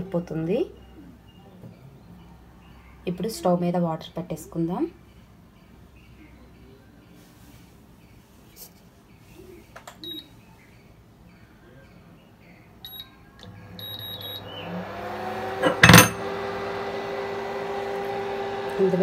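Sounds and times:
cooktop humming: 13.4s - 19.0s.

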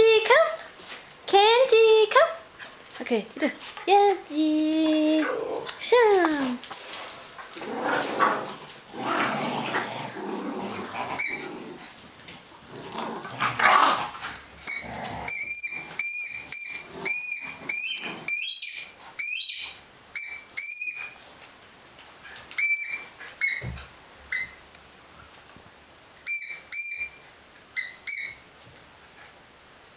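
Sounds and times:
squeaky dog toy squeaking: 14.6s - 21.2s, 22.6s - 23.7s, 24.3s - 24.6s, 26.2s - 27.2s, 27.8s - 28.5s.

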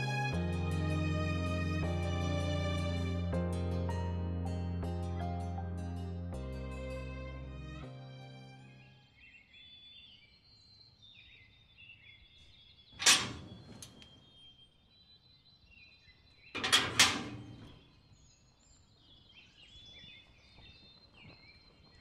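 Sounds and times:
birds chirping: 8.6s - 22.0s
gate shutting with clangs: 13.0s - 14.2s, 16.6s - 17.8s
iron gate clanking: 13.0s - 14.2s, 16.6s - 17.8s.

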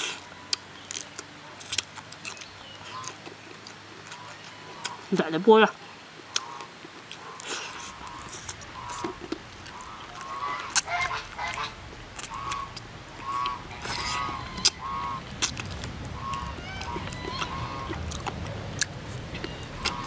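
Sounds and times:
chewing: 0.0s - 5.1s, 6.2s - 20.0s
geese honking: 2.8s - 3.2s, 5.8s - 20.0s.

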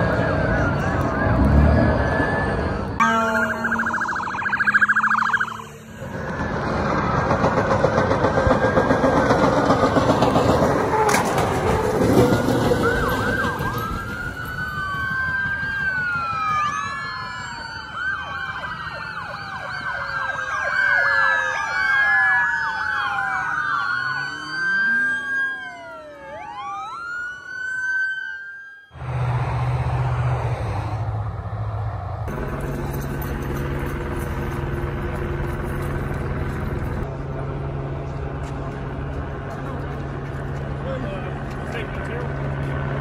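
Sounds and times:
rumble of passing vehicles: 0.0s - 28.2s, 29.0s - 43.0s
police sirens wailing: 0.0s - 43.0s.

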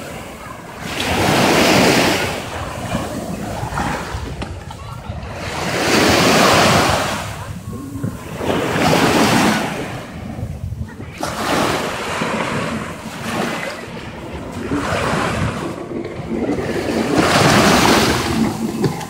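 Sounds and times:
waves washing up beach: 0.0s - 19.0s.

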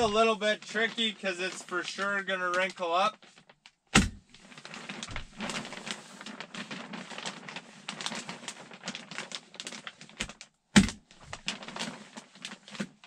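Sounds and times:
plastic sheeting crinkling: 0.0s - 13.0s.

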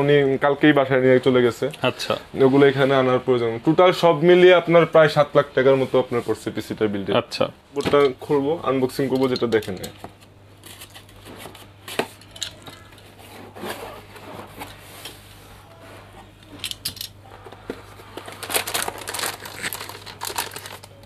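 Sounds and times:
steady low hum: 0.0s - 21.0s
plastic bag crinkling: 18.0s - 21.0s.

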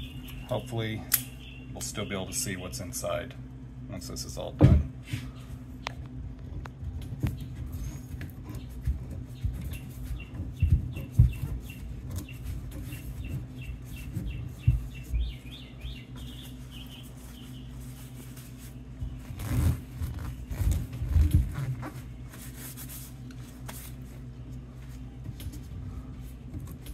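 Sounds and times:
dull knocks of handling: 6.4s - 15.4s.

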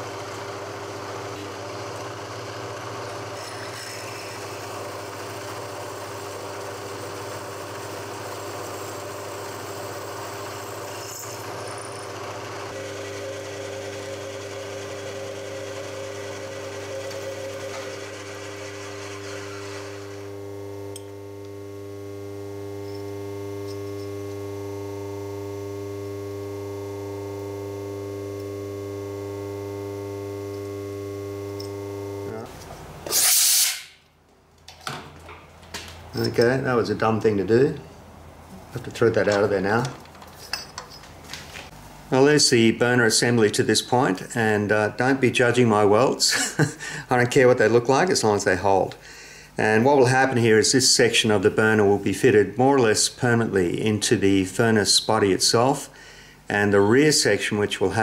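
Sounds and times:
electric machine humming: 0.0s - 33.1s.

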